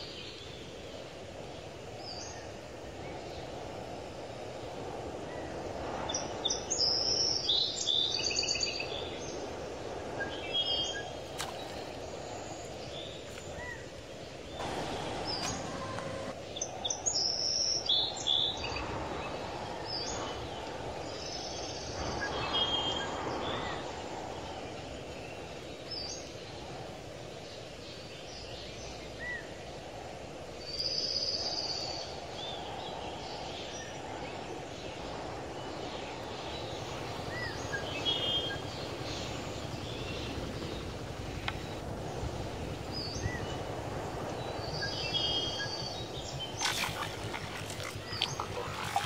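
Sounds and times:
outdoor background hiss: 0:00.0 - 0:49.0
bird calling: 0:14.6 - 0:16.4, 0:44.8 - 0:49.0
fish splashing in water: 0:46.4 - 0:49.0.

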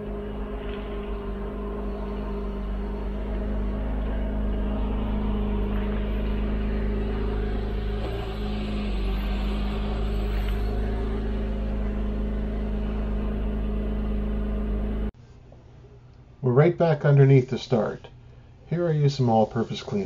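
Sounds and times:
car engine running: 0:00.0 - 0:15.2.

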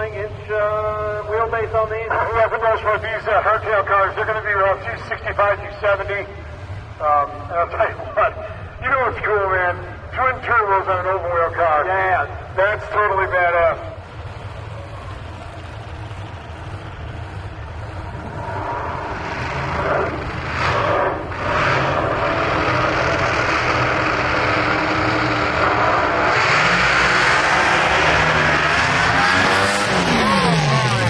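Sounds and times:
drag car engine revving: 0:10.7 - 0:31.0.

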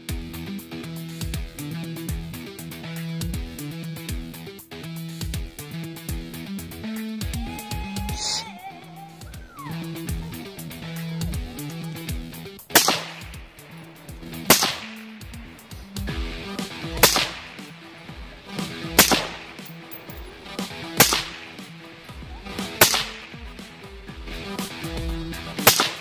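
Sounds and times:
guitar music: 0:00.0 - 0:26.0
suppressed rifle shots: 0:12.7 - 0:15.6, 0:16.9 - 0:21.7, 0:22.7 - 0:23.4, 0:25.6 - 0:26.0.

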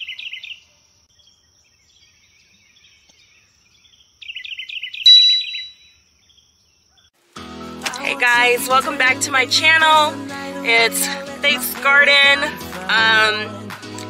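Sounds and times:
bird chirping: 0:00.0 - 0:07.2
bright chime ringing: 0:05.1 - 0:05.9.

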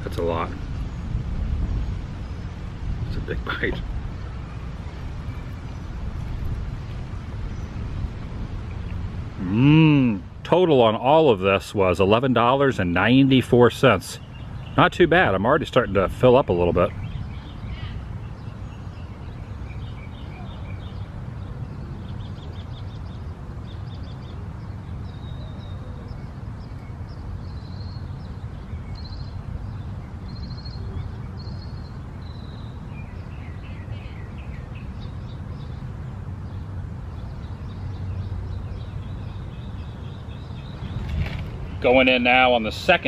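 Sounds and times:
steady low rumble: 0:00.0 - 0:18.5
small birds chirping: 0:00.0 - 0:43.0.

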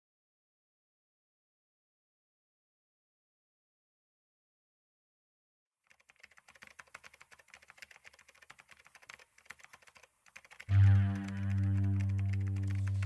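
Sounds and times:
typing on computer keyboard: 0:05.8 - 0:13.0
low synthesizer note: 0:10.7 - 0:13.0.

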